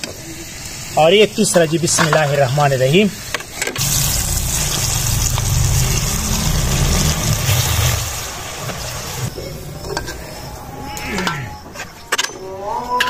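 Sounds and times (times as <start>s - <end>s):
oil sizzling with a hiss: 0.0s - 9.4s
low rumble: 3.8s - 9.4s.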